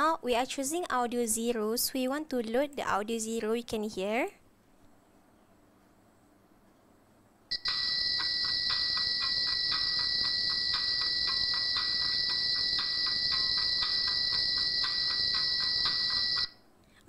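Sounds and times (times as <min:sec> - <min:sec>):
rapid chirping pulse: 0:07.5 - 0:16.6
whistle-like tone: 0:07.5 - 0:16.6.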